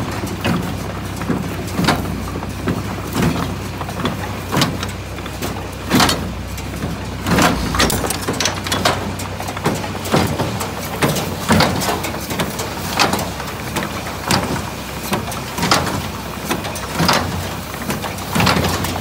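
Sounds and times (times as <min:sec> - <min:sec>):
hay baler drone: 0:00.0 - 0:19.0
metallic clanks and rattles: 0:00.4 - 0:14.6.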